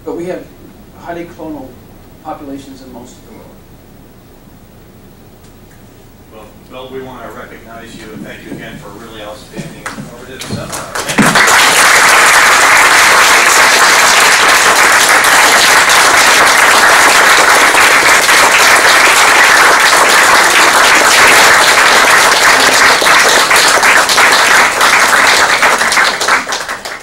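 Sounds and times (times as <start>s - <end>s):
audience applauding: 9.8s - 27.0s.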